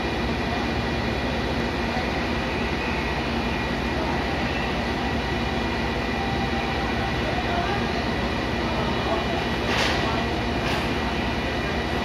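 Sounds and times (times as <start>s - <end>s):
constant high whine: 0.0s - 12.0s
diesel locomotive engine idling: 0.0s - 12.0s.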